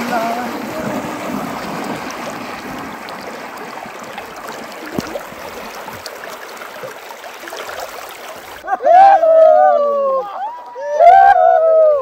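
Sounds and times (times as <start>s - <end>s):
water sloshing and splashing: 0.0s - 8.6s.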